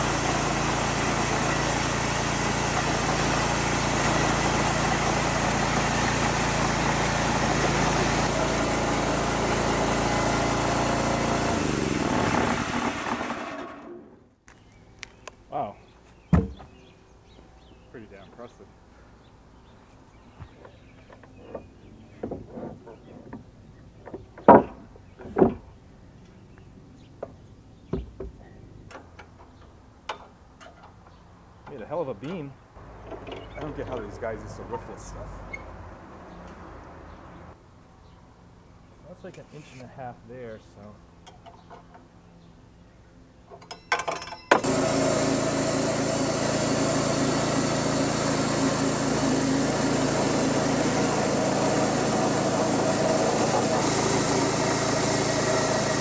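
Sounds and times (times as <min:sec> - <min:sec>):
band saw cutting log: 0:00.0 - 0:14.3, 0:33.0 - 0:35.0, 0:44.6 - 0:56.0
gas engine running: 0:00.0 - 0:14.3, 0:32.9 - 0:35.2, 0:44.6 - 0:56.0
heavy wooden beam thumping: 0:16.3 - 0:16.7.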